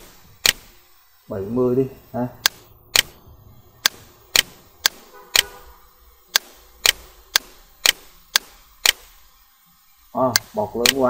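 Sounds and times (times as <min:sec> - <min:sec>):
computer mouse clicks: 0:00.0 - 0:00.8, 0:02.4 - 0:03.2, 0:03.8 - 0:05.6, 0:06.3 - 0:09.3, 0:10.3 - 0:11.0.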